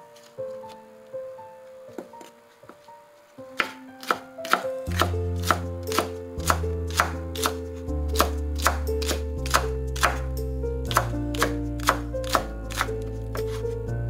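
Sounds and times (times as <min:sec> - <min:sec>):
knife slicing onion on board: 0:03.6 - 0:07.6.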